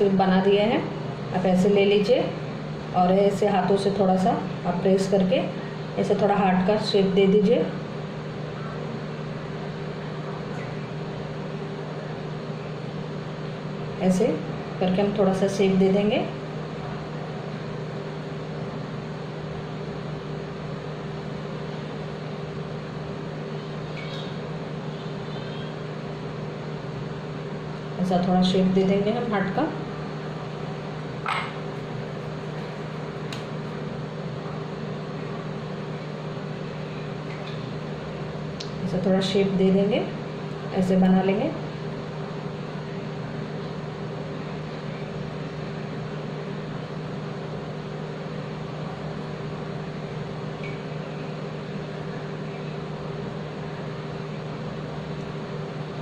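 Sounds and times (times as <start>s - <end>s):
appliance electrical hum: 0.0s - 56.0s.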